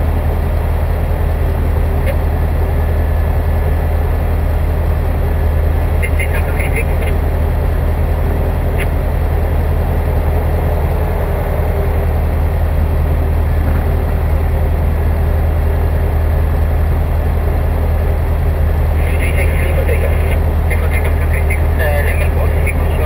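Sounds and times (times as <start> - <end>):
aircraft engine and propeller drone: 0.0 - 23.0.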